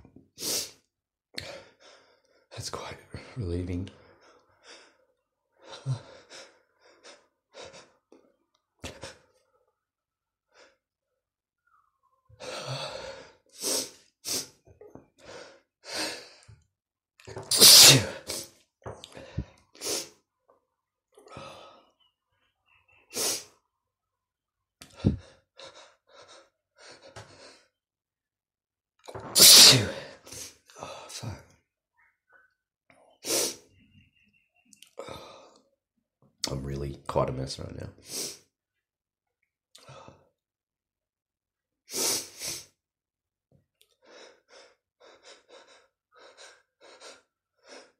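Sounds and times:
man sneezing: 17.5 - 18.5, 29.2 - 30.1.

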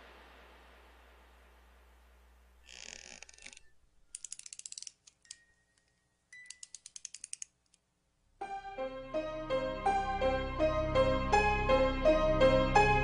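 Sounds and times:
mechanical ratchet-like clicking: 2.7 - 5.4, 6.4 - 7.8
harpsichord-like keyboard melody: 8.4 - 13.0.

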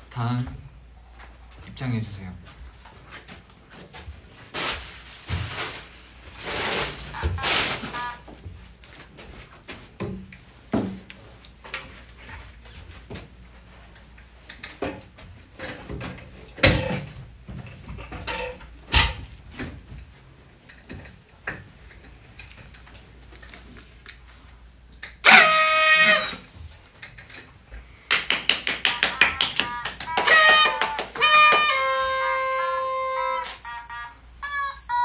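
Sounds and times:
loud horn blast: 7.1 - 8.2, 25.2 - 26.4, 30.1 - 33.6.

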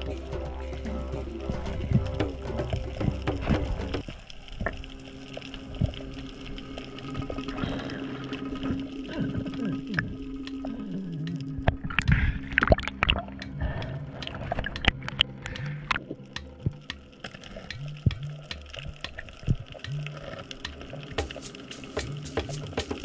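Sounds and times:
background music with bass line: 0.0 - 4.0, 19.8 - 23.0
underwater water noise: 0.0 - 23.0
sharp clicks and crackles: 2.0 - 23.0.

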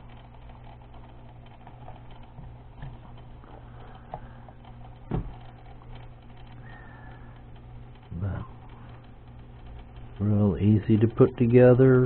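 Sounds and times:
steady low hum: 0.0 - 12.0
dull thump: 5.1 - 5.4.

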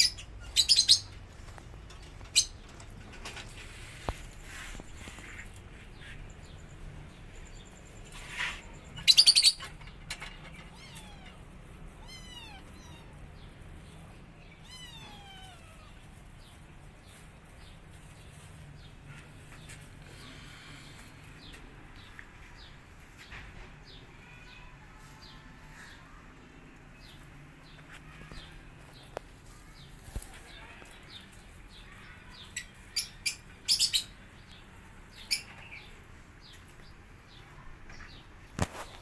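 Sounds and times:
kittens mewing: 10.6 - 13.4, 14.6 - 16.1.

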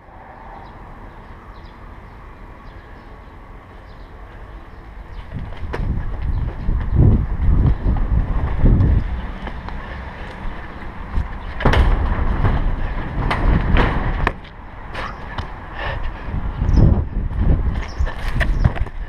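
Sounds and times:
wind rush on microphone: 0.0 - 19.0
running footfalls: 5.2 - 14.6
metallic bangs on metal roof: 11.4 - 14.4.

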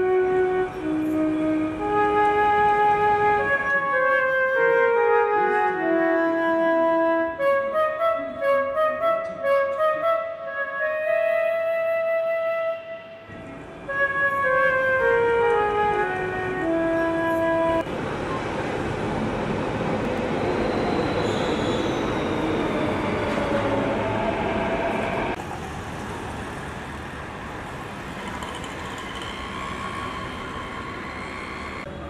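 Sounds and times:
metro train running: 0.0 - 6.6, 12.9 - 32.0
flute note: 0.0 - 17.9.

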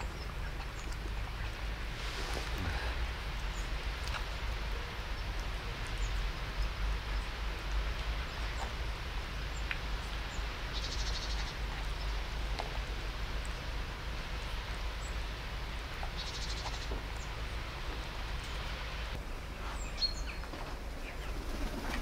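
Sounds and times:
outdoor rumble and hiss: 0.0 - 22.0.

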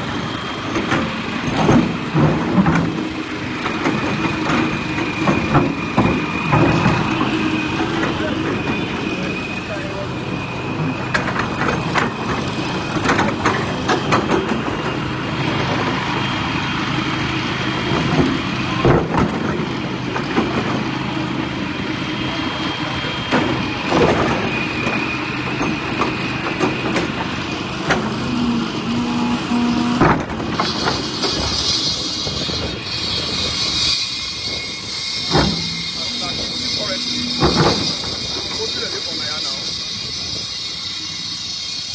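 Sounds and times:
excavator diesel engine running: 0.0 - 41.9
knocks and clanks: 0.7 - 9.8, 10.8 - 15.8, 17.9 - 21.0, 23.0 - 33.7, 35.1 - 39.5.

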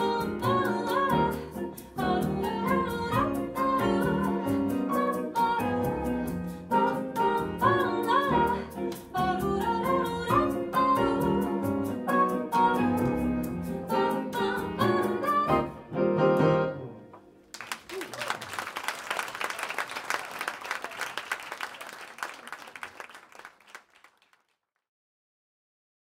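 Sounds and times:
woman singing: 0.0 - 15.8
bossa nova band playing: 0.0 - 16.8
audience applauding: 17.5 - 24.6.

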